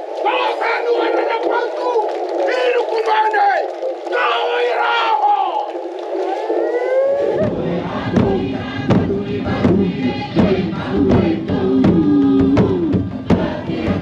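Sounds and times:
group of voices chanting: 0:06.3 - 0:14.0
large drums beating: 0:07.4 - 0:14.0.

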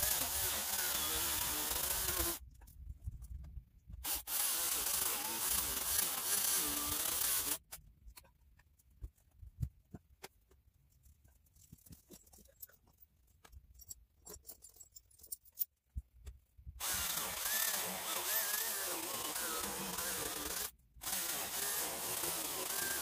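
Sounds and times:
electric chainsaw cutting log: 0:00.0 - 0:02.4, 0:04.0 - 0:07.6, 0:16.8 - 0:23.0.

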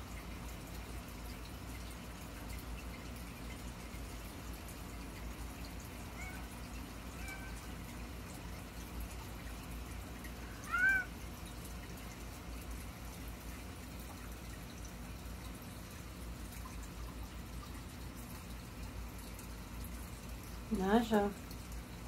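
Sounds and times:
cat meowing: 0:06.2 - 0:07.7, 0:10.4 - 0:11.1.

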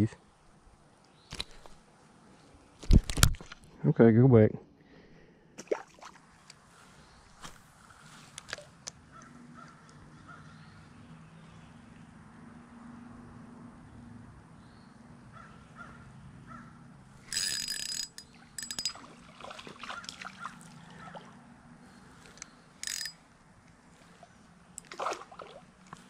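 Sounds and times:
fishing reel whirring: 0:17.2 - 0:19.0, 0:22.3 - 0:23.2.

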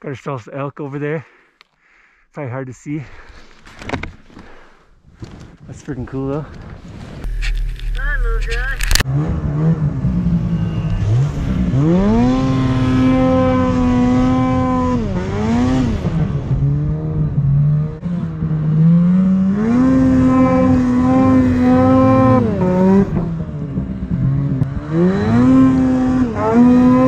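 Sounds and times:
snowmobile engine revving: 0:07.2 - 0:27.0.

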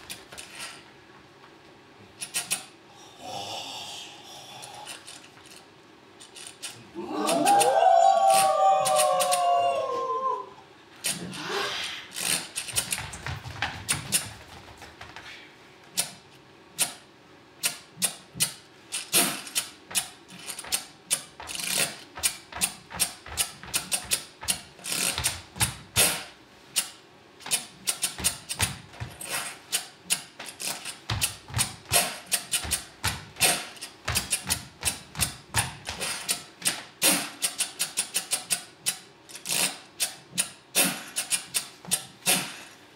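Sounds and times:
wooden abacus beads clicking: 0:06.2 - 0:09.4, 0:12.1 - 0:13.2, 0:17.6 - 0:42.7.

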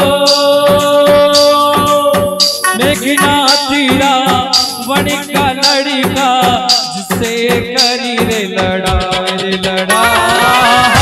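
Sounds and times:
steady drum rhythm: 0:00.0 - 0:11.0
cymbal-like accents: 0:00.1 - 0:06.0
wavering melody line: 0:00.3 - 0:05.8.

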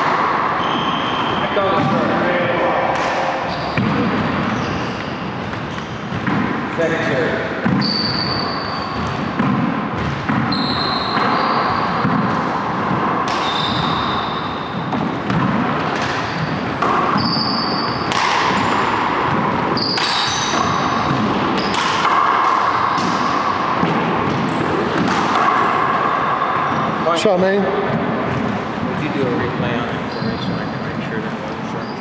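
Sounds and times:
shoes squeaking on hardwood: 0:03.5 - 0:06.2, 0:10.5 - 0:12.1, 0:16.3 - 0:18.9
ball cracking off racquets and walls: 0:07.6 - 0:26.9.

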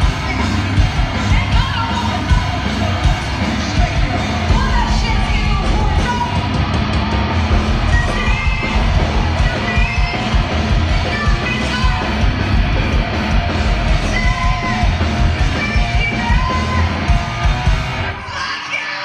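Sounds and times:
pounding drums: 0:00.0 - 0:18.1
live rock band playing: 0:00.0 - 0:18.5
woman singing and yelling: 0:01.2 - 0:02.6, 0:03.6 - 0:06.5, 0:07.9 - 0:10.4, 0:11.0 - 0:12.2, 0:14.0 - 0:17.1, 0:18.2 - 0:19.0.

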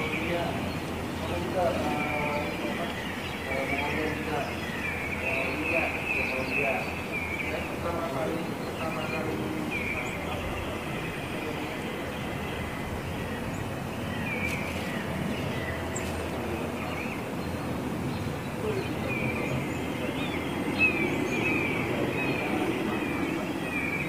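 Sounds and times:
songbirds chirping: 0:00.0 - 0:24.0.

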